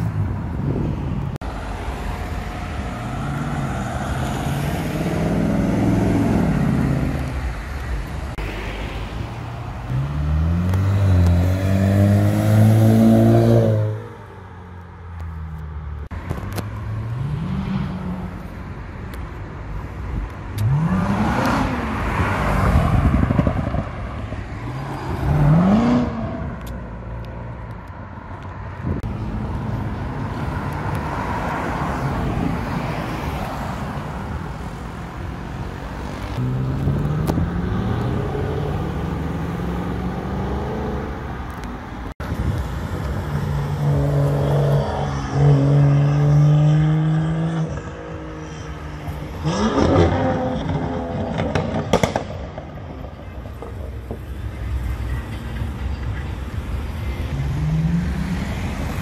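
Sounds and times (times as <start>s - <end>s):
sports car engines accelerating past: 9.9s - 14.0s, 20.6s - 26.6s, 43.2s - 52.9s.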